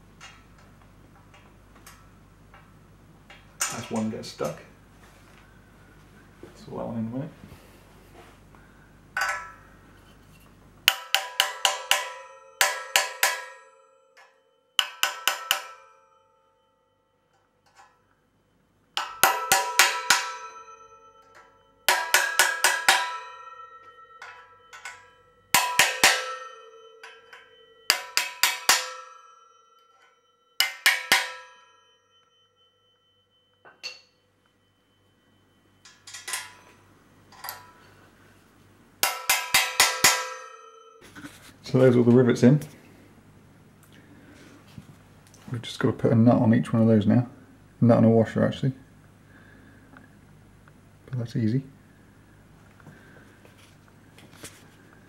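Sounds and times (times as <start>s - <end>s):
small hammer tapping metal: 9.2s - 9.7s, 10.8s - 16.0s, 17.3s - 18.0s, 19.0s - 31.7s, 33.6s - 34.1s, 35.8s - 37.9s, 39.0s - 41.3s.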